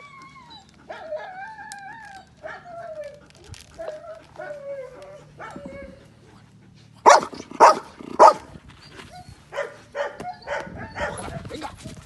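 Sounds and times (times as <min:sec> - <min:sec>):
dog whining: 0:00.0 - 0:06.3, 0:07.1 - 0:09.5, 0:10.1 - 0:11.5
dog barking: 0:07.0 - 0:08.5, 0:09.5 - 0:11.3.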